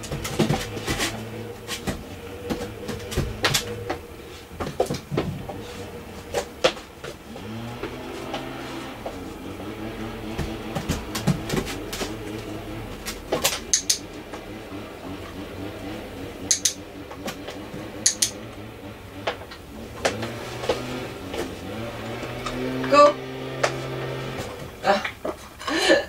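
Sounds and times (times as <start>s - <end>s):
low steady hum: 0.0s - 26.0s
sharp clicks: 13.4s - 14.1s, 16.5s - 17.4s, 18.0s - 18.4s.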